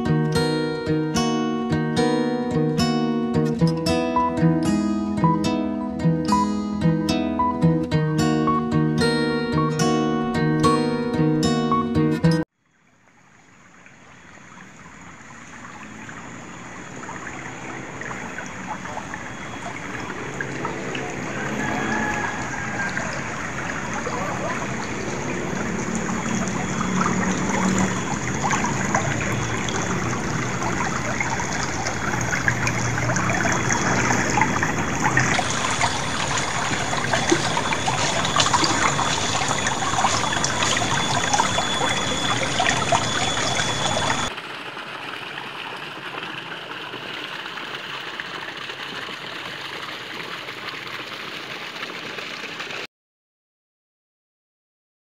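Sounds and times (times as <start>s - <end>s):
stream trickling over stones: 12.4s - 52.9s.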